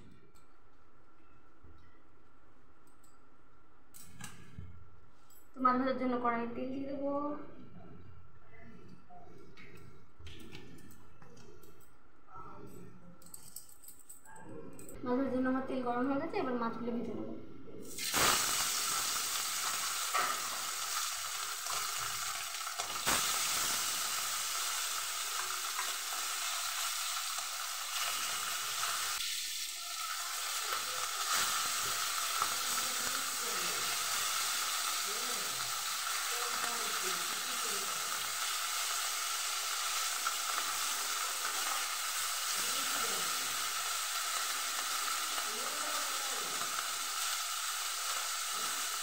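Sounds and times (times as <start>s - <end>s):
fish sizzling in hot oil: 18.0s - 49.0s.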